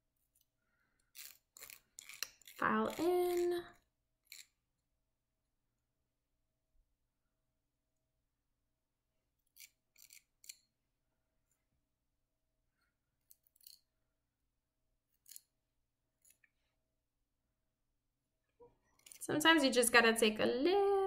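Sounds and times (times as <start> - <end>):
nail file scraping fingernail: 1.1 - 3.6, 4.2 - 4.6, 9.4 - 10.7, 13.2 - 13.9, 15.1 - 15.5.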